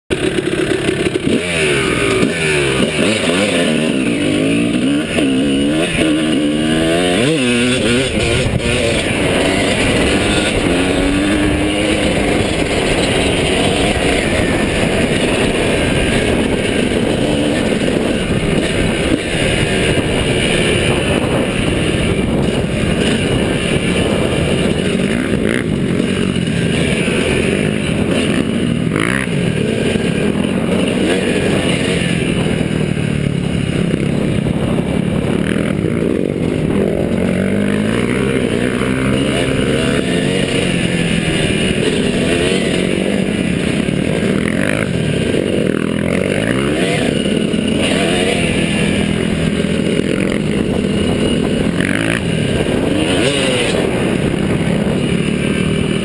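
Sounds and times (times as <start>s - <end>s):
dirt bike engine revving: 0.1s - 56.0s.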